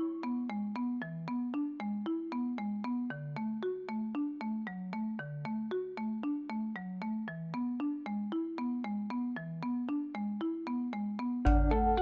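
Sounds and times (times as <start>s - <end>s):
light tune with bass line: 11.4s - 12.0s.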